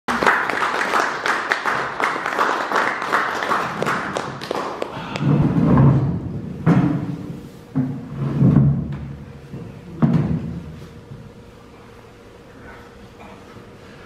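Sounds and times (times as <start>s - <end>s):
audience applause: 0.1s - 5.3s
low rumbling: 5.0s - 7.4s.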